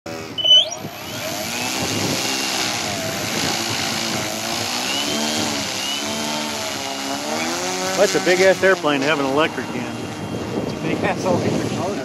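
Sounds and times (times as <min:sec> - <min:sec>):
high-pitched upward sliding tone: 0:00.2 - 0:01.8
model airplane motor running: 0:00.2 - 0:12.0.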